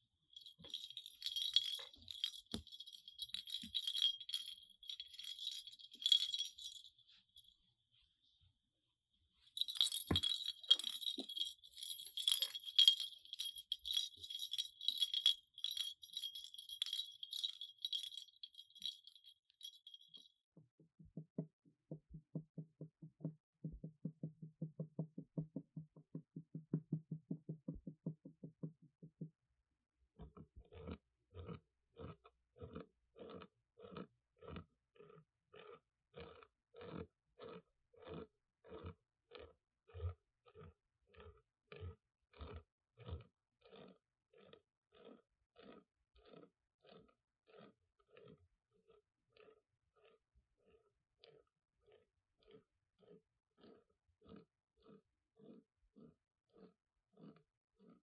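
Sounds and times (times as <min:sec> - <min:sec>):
small bell jingling: 0:00.4 - 0:07.0, 0:09.6 - 0:20.3.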